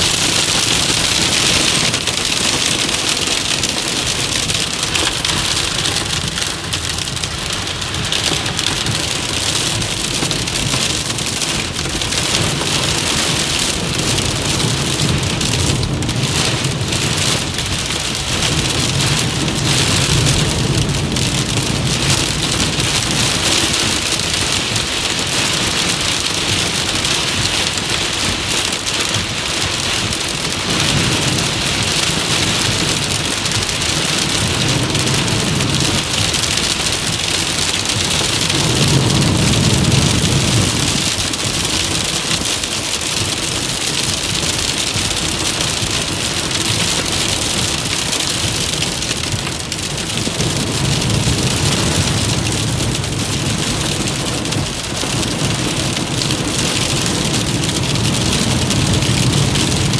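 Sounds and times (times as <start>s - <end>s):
heavy rain on car roof: 0.0s - 59.9s.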